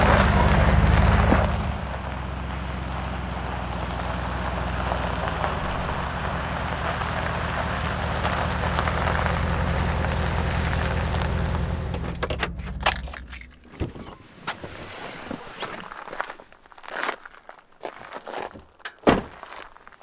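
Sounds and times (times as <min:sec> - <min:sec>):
truck engine running: 0:00.0 - 0:13.9
tyres rolling over gravel: 0:00.0 - 0:20.0.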